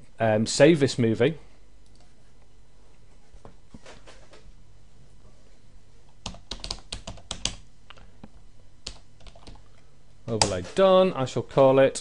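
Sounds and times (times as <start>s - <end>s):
computer keyboard typing: 6.2s - 7.7s, 8.8s - 9.7s.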